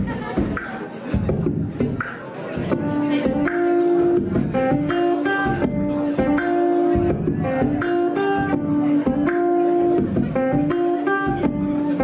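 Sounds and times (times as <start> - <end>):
ukulele strumming: 2.7 - 12.0.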